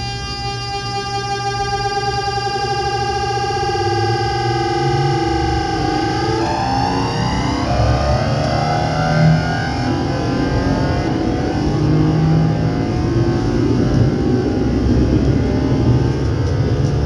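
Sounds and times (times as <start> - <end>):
electric train motor whine: 0.0 - 17.0
steady low rumble: 3.6 - 17.0.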